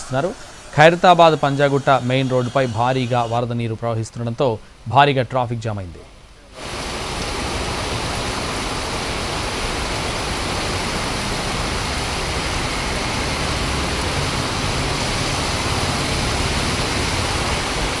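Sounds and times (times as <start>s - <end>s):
heavy rain downpour: 6.5s - 18.0s
vehicle engine hum: 6.9s - 18.0s.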